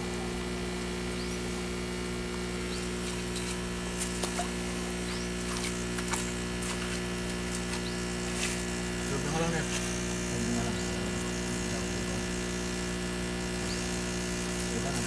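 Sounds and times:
air pump buzzing: 0:00.0 - 0:15.0
light splashes: 0:05.3 - 0:08.8.

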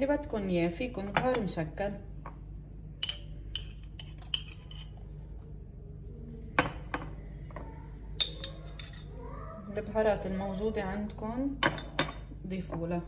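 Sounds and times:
metal spoon clinking glass jars: 0:03.0 - 0:05.0, 0:08.2 - 0:09.1.

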